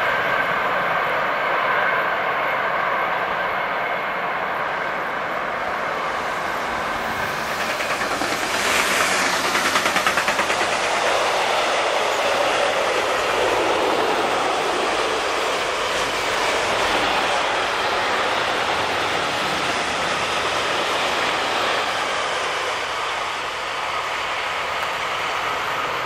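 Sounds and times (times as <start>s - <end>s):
freight train rolling past: 0.0s - 26.0s
wheels clattering over rails: 6.6s - 17.4s.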